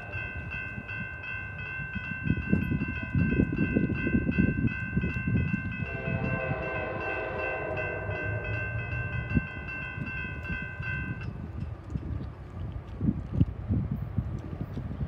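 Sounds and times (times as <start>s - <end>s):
crossing bell ringing: 0.0s - 11.7s
wind buffeting microphone: 0.0s - 15.0s
distant train horn: 5.8s - 11.2s.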